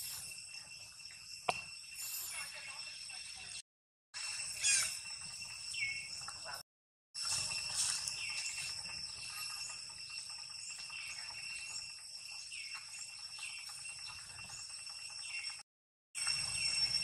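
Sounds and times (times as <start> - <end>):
high-pitched insect drone: 0.0 - 3.6, 4.2 - 6.6, 7.2 - 15.6, 16.2 - 17.0
short chirping calls: 4.2 - 6.4.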